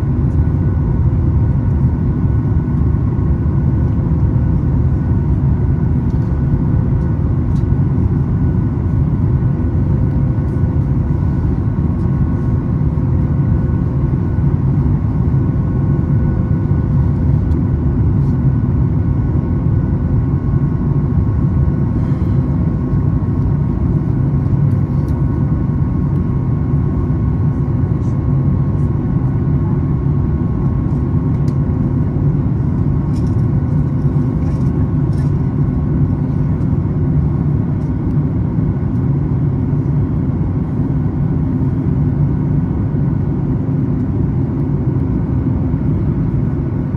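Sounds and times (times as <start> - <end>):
airplane cabin drone: 0.0 - 46.9.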